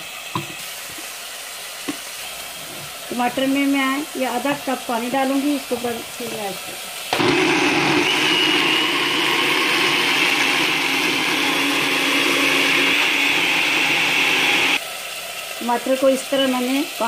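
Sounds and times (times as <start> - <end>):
electric blender running: 4.2 - 14.8.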